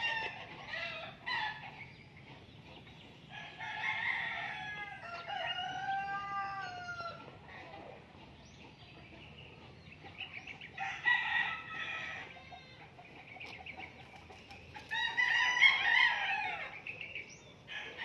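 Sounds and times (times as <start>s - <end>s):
rooster crowing: 3.4s - 7.3s.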